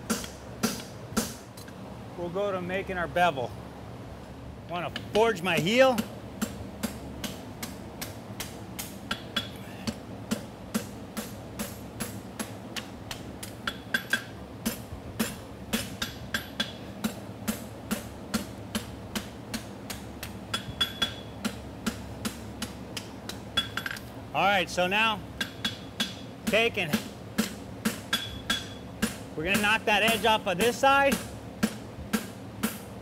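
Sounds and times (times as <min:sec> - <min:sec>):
hammer striking metal on anvil: 0:06.0 - 0:24.0, 0:25.4 - 0:32.9
metallic ringing: 0:28.1 - 0:28.9.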